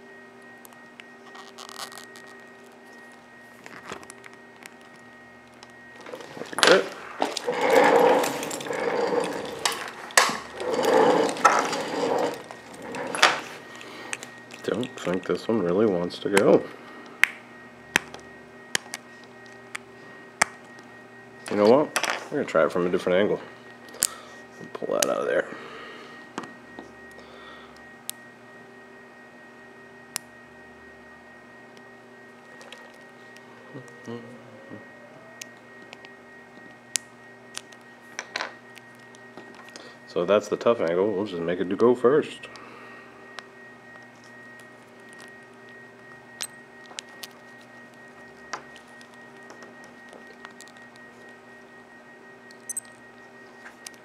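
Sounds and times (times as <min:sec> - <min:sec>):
faint room hum: 0:00.0 - 0:54.0
plastic rubbing and scraping: 0:06.0 - 0:13.7
small parts and tools clicking: 0:52.5 - 0:53.0.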